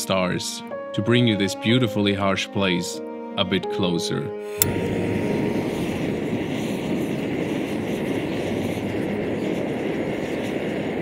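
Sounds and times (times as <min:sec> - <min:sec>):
camping stove burner hissing: 0:04.4 - 0:11.0.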